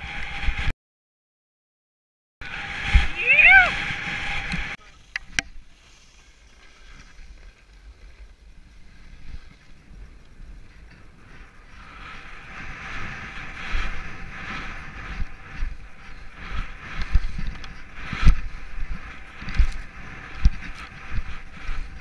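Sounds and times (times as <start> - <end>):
wind on microphone: 0.0 - 0.7, 2.4 - 5.8, 6.5 - 22.0
skis hissing through snow: 2.5 - 9.7, 11.6 - 22.0.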